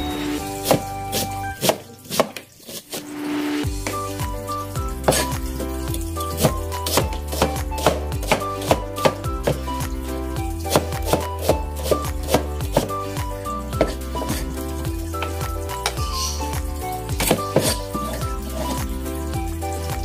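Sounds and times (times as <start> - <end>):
background music: 0.0 - 2.3, 3.1 - 20.0
knife chopping on cutting board: 5.0 - 5.3, 6.3 - 9.6, 10.7 - 12.9.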